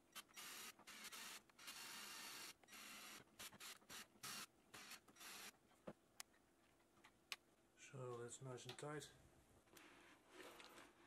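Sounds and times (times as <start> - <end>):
cordless drill short bursts: 0.1 - 5.5.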